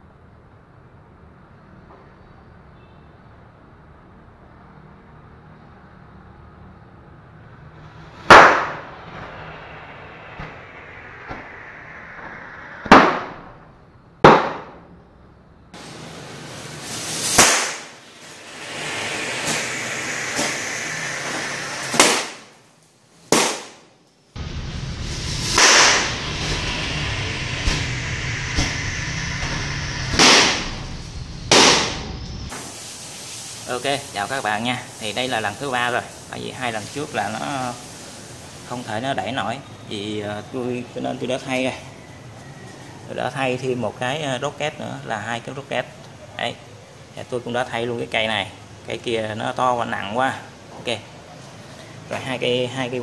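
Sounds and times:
low hum: 7.0s - 22.8s, 24.3s - 32.6s
rocket motor hissing: 7.4s - 14.2s, 15.8s - 23.8s, 24.4s - 39.2s
firework rocket motor bang: 7.4s - 15.0s, 15.8s - 23.8s, 24.4s - 33.0s
balloons bursting bang: 12.9s - 13.3s, 14.2s - 14.8s, 17.2s - 18.0s, 21.9s - 22.5s, 23.3s - 23.8s, 31.5s - 32.0s.

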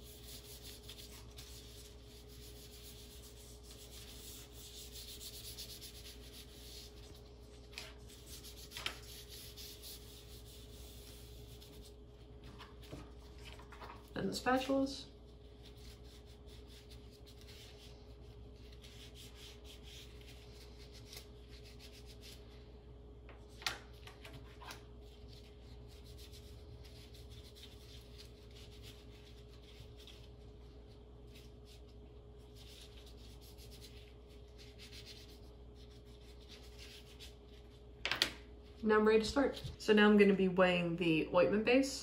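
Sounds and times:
gloved fingers rubbing spatula: 0.0s - 12.0s
low steady hum: 0.0s - 42.0s.

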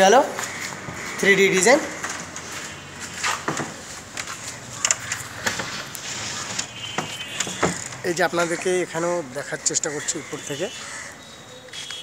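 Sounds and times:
outdoor background noise: 0.0s - 12.0s
wooden door knocking and scraping: 6.4s - 8.0s.

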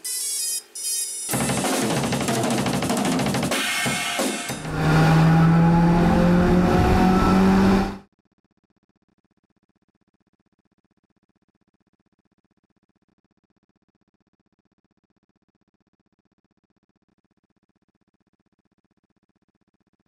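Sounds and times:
drum kit with cymbals: 1.2s - 4.7s
rising tones: 4.5s - 8.0s
held low note: 4.6s - 8.0s.

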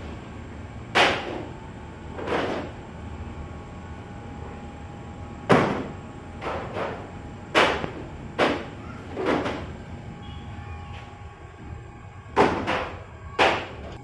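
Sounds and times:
oven hum: 0.0s - 14.0s
faint thin whine: 8.7s - 14.0s.

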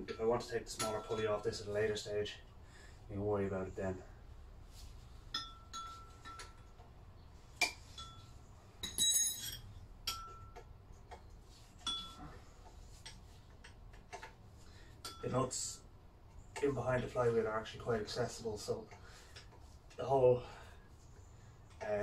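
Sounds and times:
metal tools clinking: 7.7s - 10.7s.

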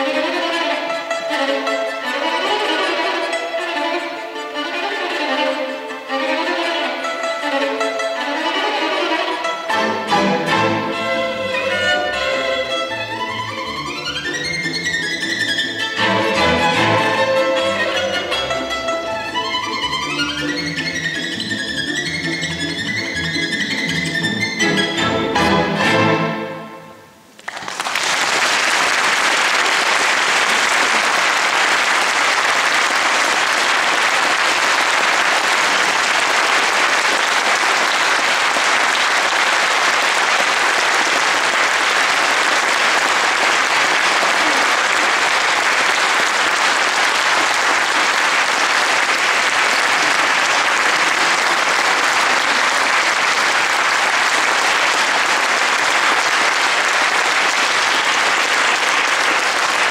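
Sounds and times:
audience applauding: 27.4s - 59.9s.

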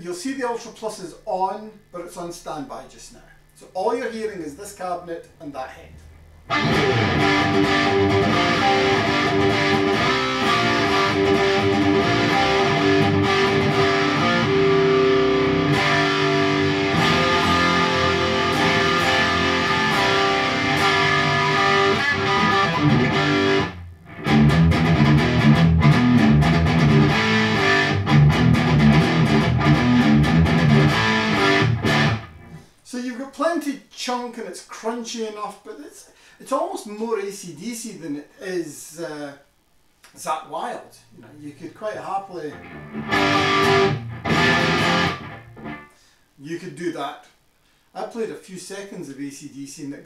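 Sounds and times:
electric guitar rock riff: 6.5s - 32.7s, 42.5s - 46.1s.

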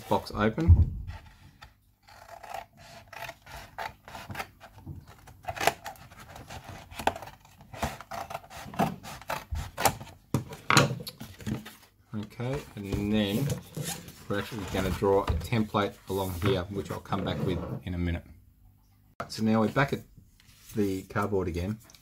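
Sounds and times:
scissors cutting cardboard: 1.2s - 10.6s.

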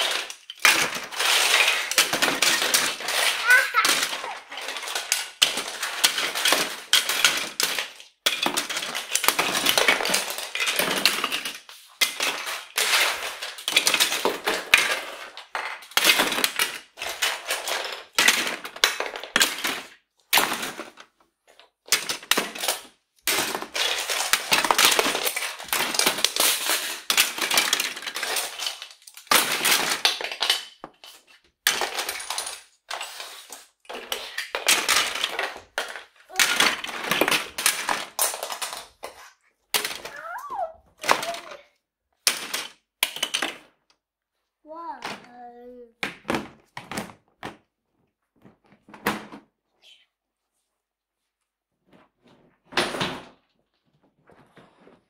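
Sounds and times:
toys clattering into toy box: 0.0s - 43.9s.

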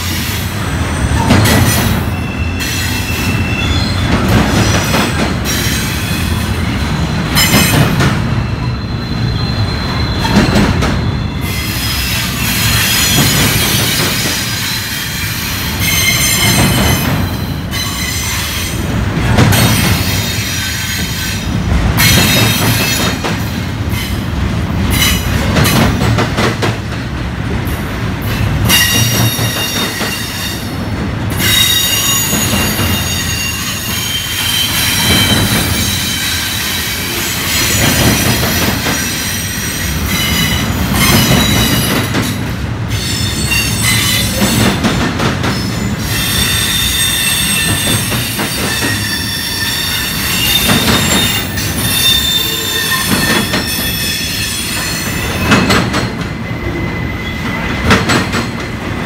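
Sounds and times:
freight train wheels rumbling: 0.0s - 59.0s
high-pitched wheel squeal: 8.4s - 14.0s, 46.0s - 55.6s.

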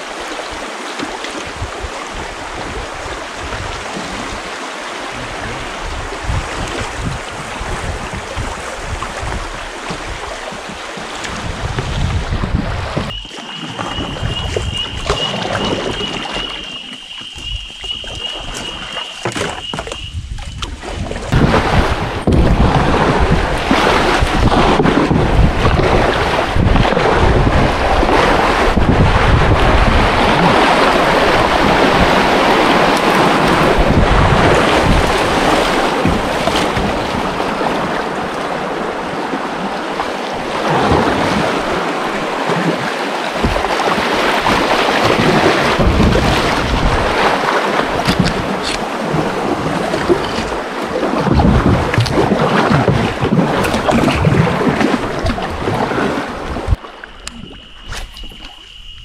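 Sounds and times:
wind buffeting microphone: 1.5s - 59.0s
river rapids rushing: 27.6s - 51.2s.

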